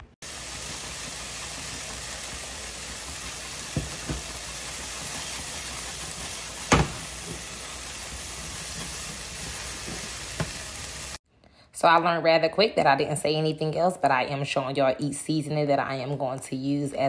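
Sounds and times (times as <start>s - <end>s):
vegetables sizzling in frying pan: 0.2s - 11.2s.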